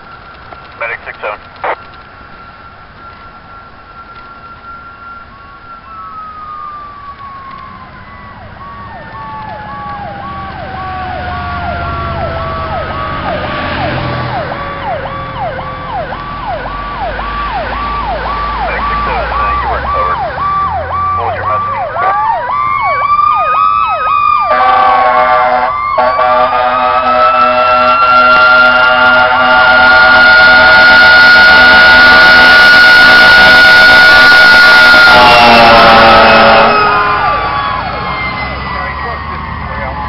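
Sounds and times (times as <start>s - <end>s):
diesel engine rumble: 0.0s - 31.0s, 34.5s - 40.0s
electronic siren yelping: 0.5s - 40.0s
siren winding in pitch: 1.8s - 40.0s
air horns: 24.5s - 38.2s.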